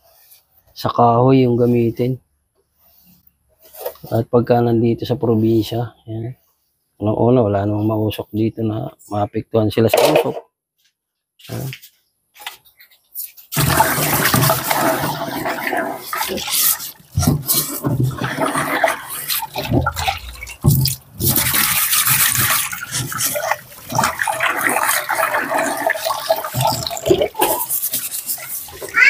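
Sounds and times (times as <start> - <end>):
tap water running into sink: 13.6 - 29.0.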